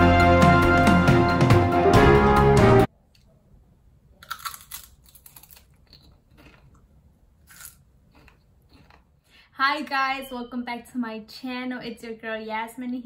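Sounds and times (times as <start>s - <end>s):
intro music: 0.0s - 2.9s
person chewing crunchy chips: 4.2s - 9.3s.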